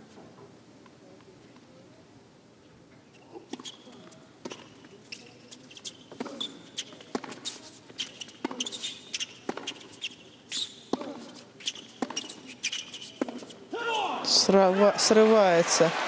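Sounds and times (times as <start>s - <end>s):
sneaker squeaks on court: 3.1s - 14.1s
racket striking tennis ball: 7.1s - 7.7s, 9.4s - 10.0s, 10.9s - 13.6s.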